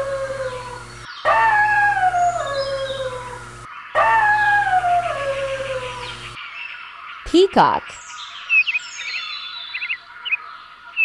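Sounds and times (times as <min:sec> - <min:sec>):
wolf howling: 0:00.0 - 0:06.4.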